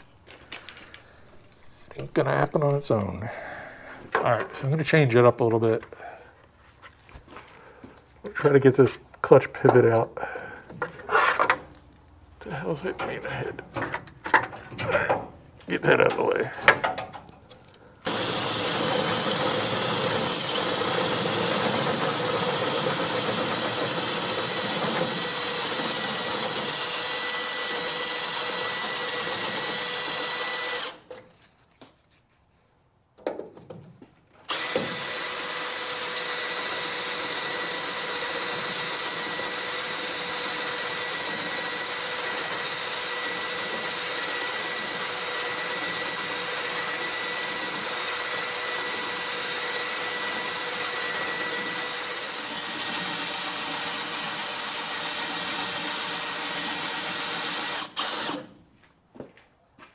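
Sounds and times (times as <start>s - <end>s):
power tool high whine: 18.0s - 31.1s, 34.5s - 58.5s.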